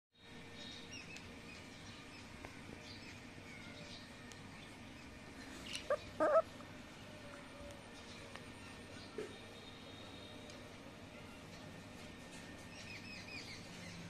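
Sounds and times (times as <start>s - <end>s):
bird chirps: 5.6s - 6.4s.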